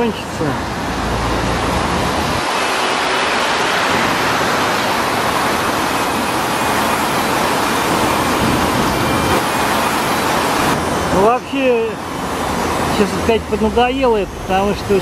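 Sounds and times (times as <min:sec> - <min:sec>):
road traffic hiss: 0:00.0 - 0:15.0
deep rumble: 0:08.3 - 0:09.4.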